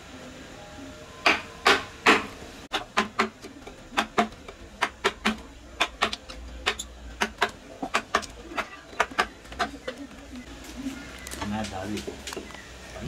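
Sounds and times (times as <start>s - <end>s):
mallet striking chisel into wood: 1.2s - 9.8s.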